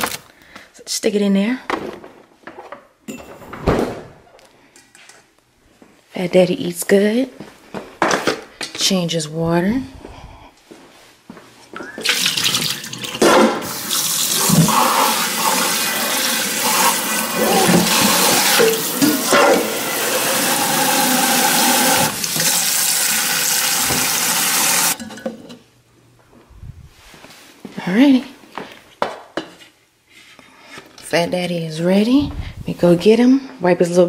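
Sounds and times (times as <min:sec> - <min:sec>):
tap running into metal sink: 0:23.5 - 0:24.9.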